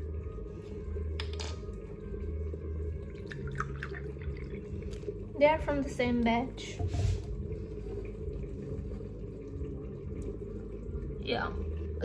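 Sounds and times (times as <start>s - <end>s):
liquid pouring into glass: 1.2s - 5.4s.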